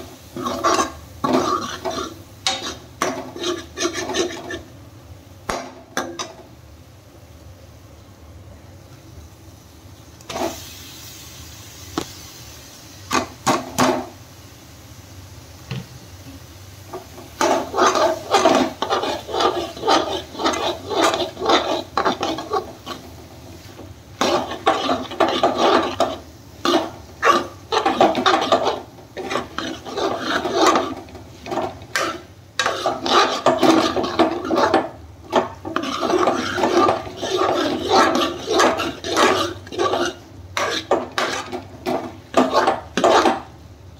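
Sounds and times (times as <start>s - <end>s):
metal spoon scraping frying pan: 0.3s - 4.7s, 16.9s - 43.5s.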